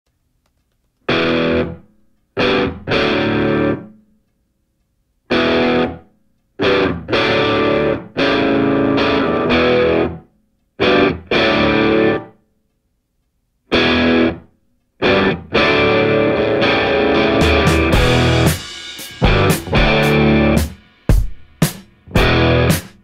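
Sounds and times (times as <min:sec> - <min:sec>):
distorted electric guitar chords: 0:01.1 - 0:04.0, 0:05.3 - 0:06.0, 0:06.6 - 0:12.4, 0:13.7 - 0:20.8, 0:22.0 - 0:23.0.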